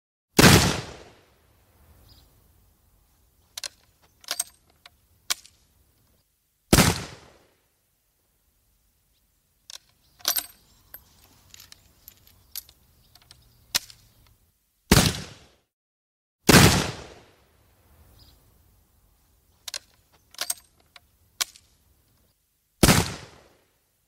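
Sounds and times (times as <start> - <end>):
musket shot: 0.4 - 1.2, 6.7 - 7.5, 14.9 - 15.6, 16.5 - 17.3, 22.8 - 23.6
metallic clicks and rattles: 3.5 - 5.6, 9.7 - 14.4, 19.6 - 21.7.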